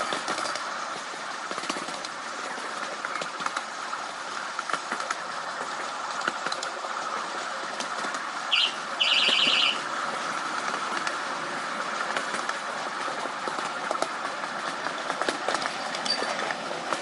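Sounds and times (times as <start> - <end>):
clicks over rail joints: 0.0 - 8.5, 10.1 - 17.0
train wheels running on track: 0.0 - 17.0
high electronic beep: 8.6 - 9.8.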